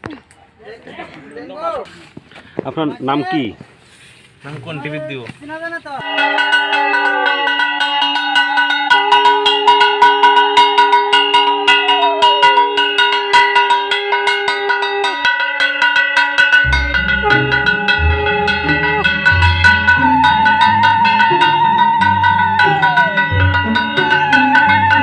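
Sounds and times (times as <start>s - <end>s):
bass and drums: 16.7s - 21.3s
sustained synth tones: 16.7s - 25.0s.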